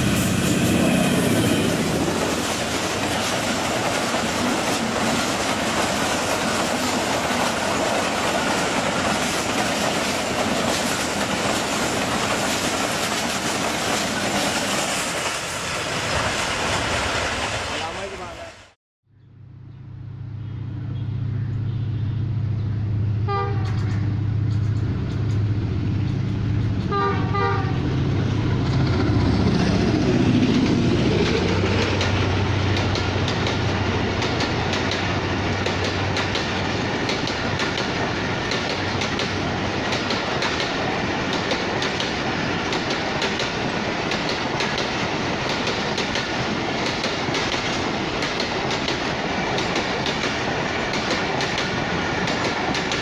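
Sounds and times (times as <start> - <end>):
train coaches rushing by: 0.0 - 18.8, 23.5 - 53.0
diesel locomotive engine droning: 0.0 - 53.0
train horn blasts: 23.2 - 24.1, 26.9 - 27.9
wheels clicking over rail joints: 30.4 - 53.0.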